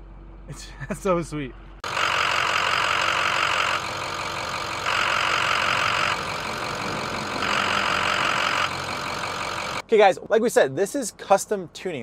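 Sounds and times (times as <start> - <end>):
diesel engine idling: 0.0 - 9.9
loud engine idle rattle: 1.6 - 9.8.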